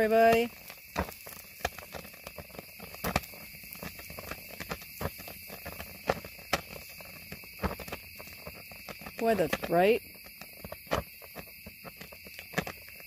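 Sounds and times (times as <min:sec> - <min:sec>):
fire crackling and popping: 0:00.0 - 0:13.0.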